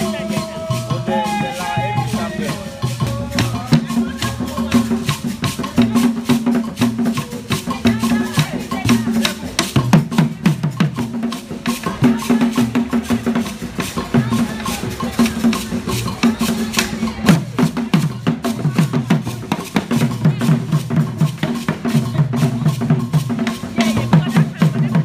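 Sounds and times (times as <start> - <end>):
hand drums playing dance rhythm: 0.0 - 25.0.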